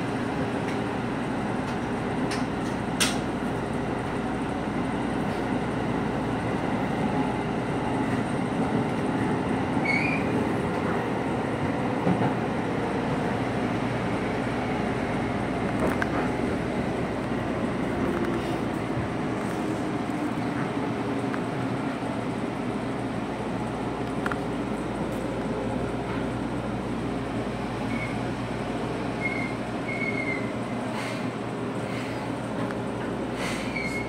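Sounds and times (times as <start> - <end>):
train wheels and motors rumbling: 0.0 - 34.0
high wheel squeal: 9.8 - 10.4, 27.9 - 28.2, 29.2 - 30.6, 33.5 - 34.0.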